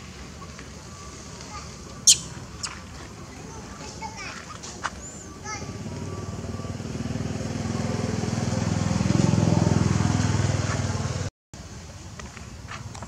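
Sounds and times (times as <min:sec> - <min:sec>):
vehicle engine passing by: 0:05.0 - 0:11.3.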